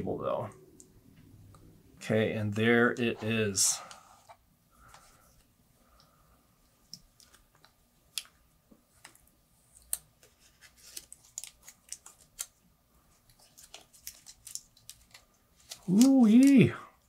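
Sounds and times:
plastic wrap being peeled off: 0:13.3 - 0:16.7.

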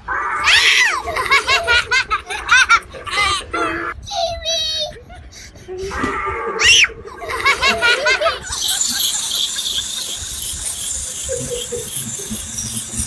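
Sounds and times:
child crying: 0:00.0 - 0:08.5
child laughing: 0:00.4 - 0:06.1, 0:07.0 - 0:13.0
wind-up toy whirring and ticking: 0:07.2 - 0:13.0.

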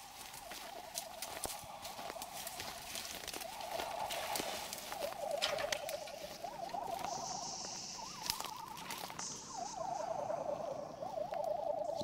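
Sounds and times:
footsteps crunching dry grass: 0:00.0 - 0:12.0
twigs snapping: 0:00.1 - 0:07.3, 0:08.0 - 0:09.2
faint high warbling tone: 0:03.4 - 0:12.0.

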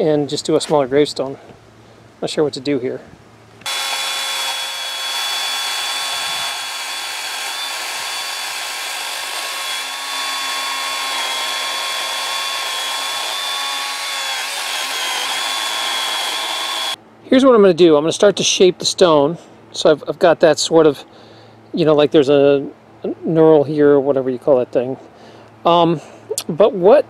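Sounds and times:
electric chainsaw cutting wood: 0:03.6 - 0:17.0.

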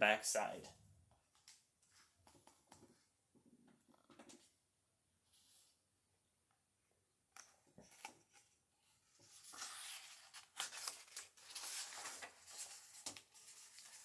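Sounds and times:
book pages rustling: 0:07.7 - 0:14.0.

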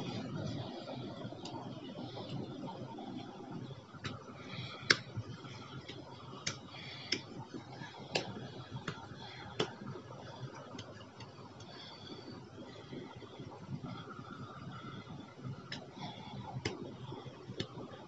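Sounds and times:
fingertips slapping palm: 0:04.8 - 0:05.2, 0:05.9 - 0:09.8.

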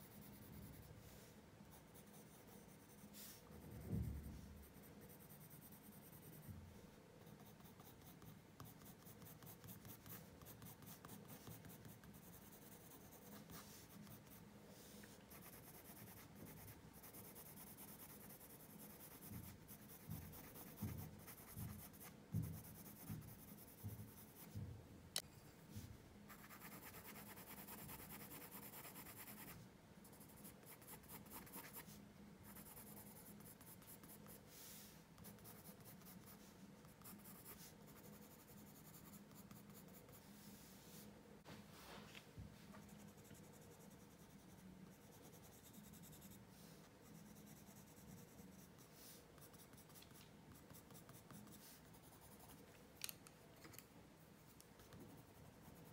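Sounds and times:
pencil scratching on paper: 0:07.2 - 0:24.6, 0:26.3 - 0:40.9, 0:42.8 - 0:52.6, 0:54.9 - 0:55.9.

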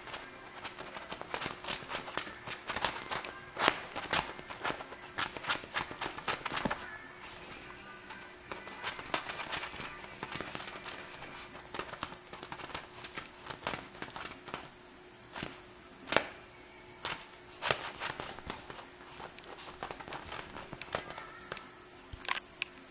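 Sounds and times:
kitten scrabbling on leather: 0:08.5 - 0:14.7, 0:17.1 - 0:21.6.

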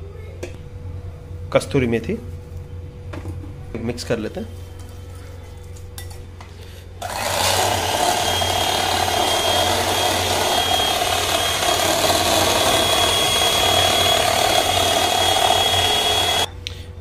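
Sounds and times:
electric hand mixer running: 0:07.0 - 0:16.5.

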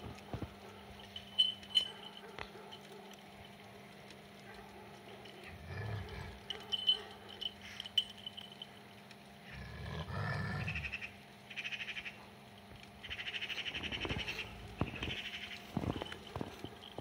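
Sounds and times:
low rough animal sound: 0:05.3 - 0:07.0, 0:09.4 - 0:11.2, 0:13.1 - 0:16.6
rapidly pulsing animal calls: 0:10.6 - 0:12.2, 0:13.0 - 0:16.1.

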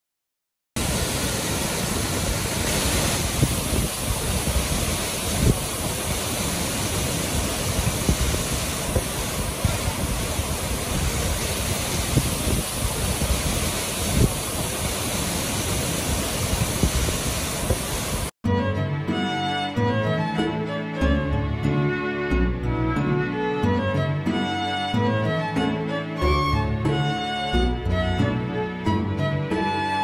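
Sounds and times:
waterfall rushing: 0:00.8 - 0:18.3, 0:23.3 - 0:28.8.

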